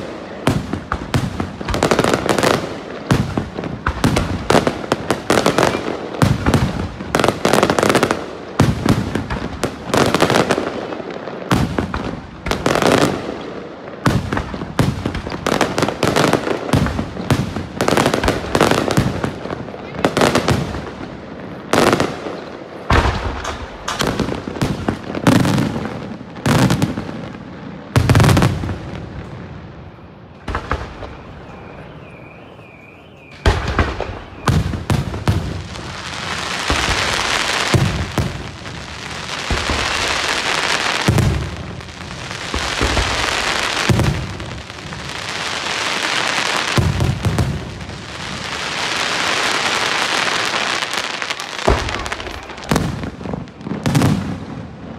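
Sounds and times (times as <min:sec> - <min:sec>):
continuous firework crackling: 0:00.0 - 0:54.9
firework shells bursting with bangs: 0:21.8 - 0:27.0, 0:30.4 - 0:54.7.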